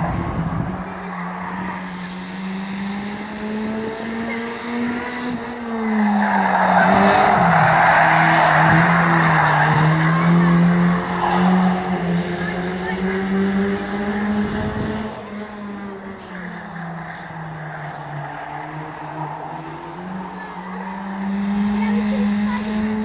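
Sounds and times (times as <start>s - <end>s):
race car engine: 0.0s - 23.0s
tyres squealing: 5.8s - 12.6s.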